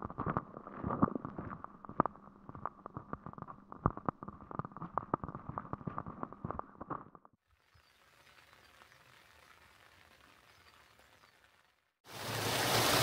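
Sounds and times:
rain drops tapping on umbrellas: 7.6 - 11.8
faint rain hiss: 12.1 - 13.0.

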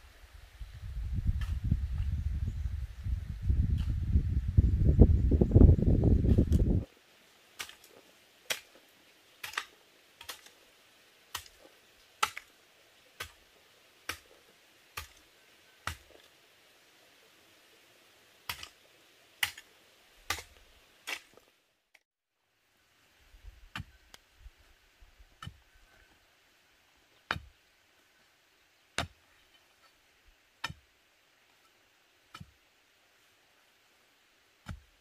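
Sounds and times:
metal hoe striking earth: 7.6 - 8.8, 9.4 - 10.6, 11.3 - 16.3, 18.5 - 18.8, 19.4 - 21.4, 23.7 - 24.2, 25.3 - 25.7, 27.2 - 27.6, 29.0 - 30.0, 30.6 - 30.9, 31.5 - 32.7, 34.6 - 35.0.

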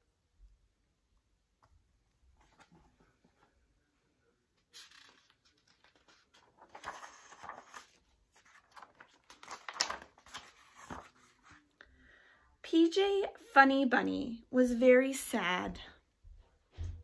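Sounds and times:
book pages turning: 2.4 - 3.6, 4.6 - 11.8.

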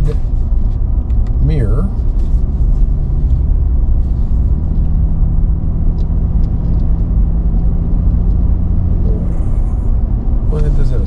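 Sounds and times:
road and wind rumble: 0.0 - 11.0
vehicle engine hum: 0.0 - 11.0.

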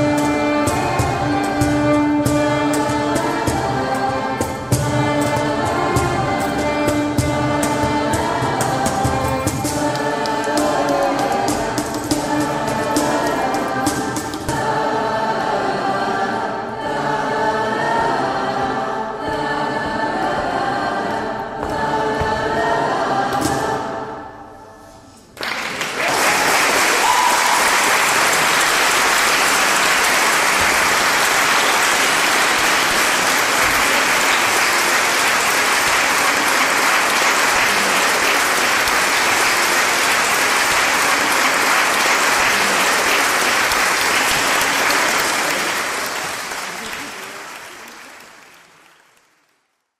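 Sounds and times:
music: 0.0 - 25.4, 27.6 - 46.6
audience applause: 25.4 - 49.7.

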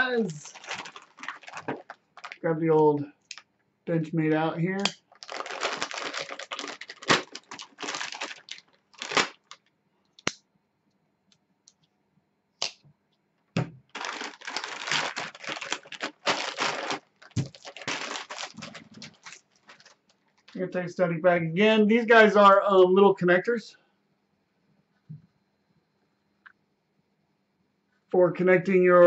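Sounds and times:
plastic bag crinkling and tearing: 0.0 - 2.4, 5.1 - 9.7, 13.9 - 20.6.

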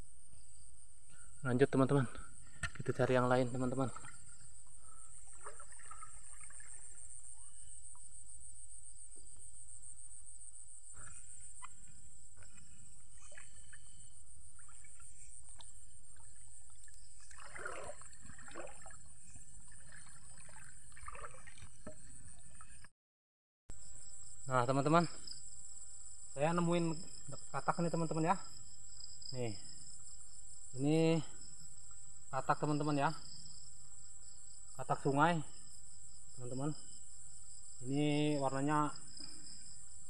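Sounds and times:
high-pitched insect chorus: 0.0 - 21.5, 23.7 - 40.0
trickling water: 2.4 - 8.1, 11.6 - 22.9.

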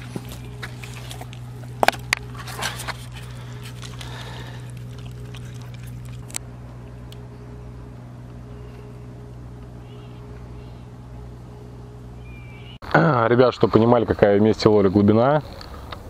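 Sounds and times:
dog eating: 0.0 - 6.4
steady low hum: 0.0 - 16.0.

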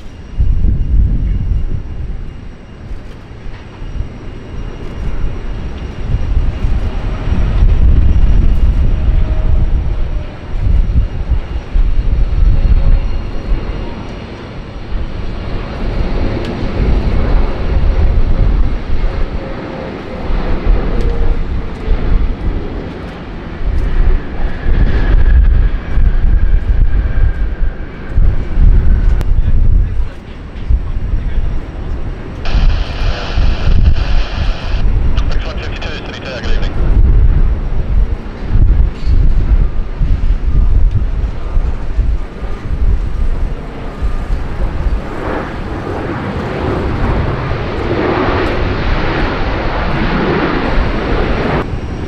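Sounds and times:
faint engine whine: 0.0 - 37.4
jet engines passing: 0.0 - 52.0.

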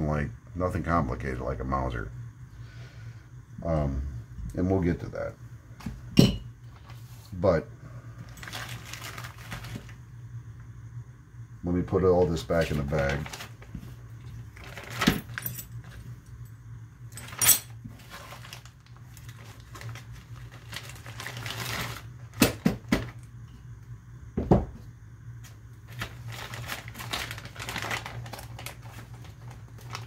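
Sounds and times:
plastic bag crinkling: 8.3 - 10.0, 12.6 - 16.0, 17.2 - 22.4, 25.9 - 30.0
metal parts clinking: 17.2 - 17.8.

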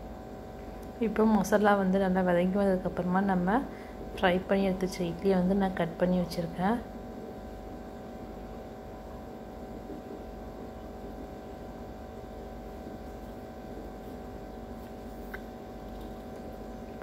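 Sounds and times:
buzzy electrical hum: 0.0 - 17.0.

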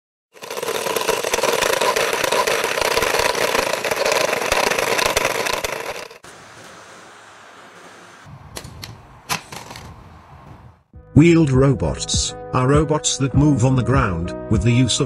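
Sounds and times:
wheels crackling on grit: 0.3 - 6.7
robot drive motor drone: 0.4 - 6.2.

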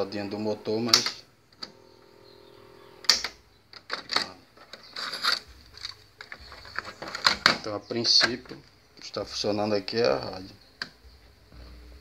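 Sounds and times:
cassette deck motor hum: 0.0 - 3.6, 10.8 - 12.0.

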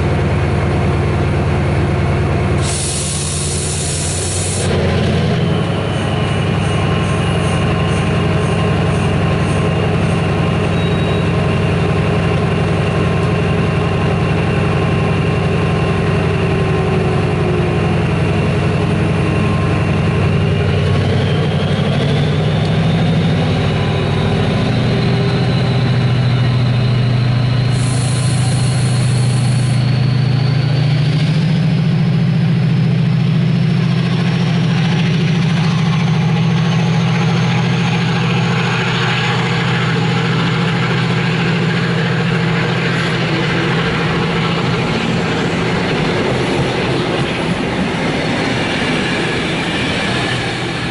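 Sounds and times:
diesel locomotive engine: 0.0 - 50.9
rising whine: 1.2 - 50.9
hiss: 2.6 - 4.7, 27.7 - 29.9.

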